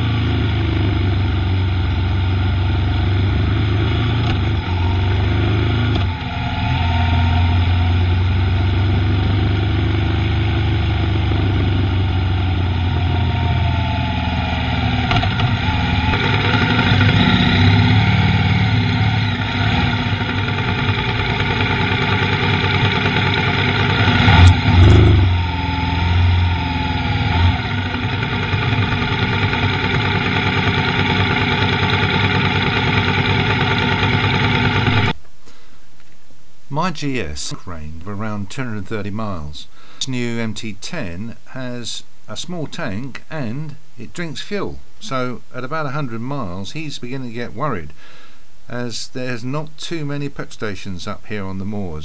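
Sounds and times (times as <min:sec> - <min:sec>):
motorcycle engine running: 0:00.0 - 0:35.2.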